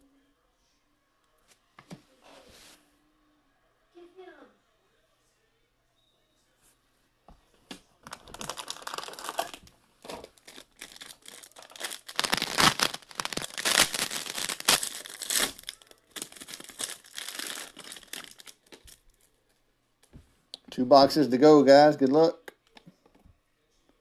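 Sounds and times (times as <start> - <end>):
foil card pack crinkling: 8.1 - 19.0.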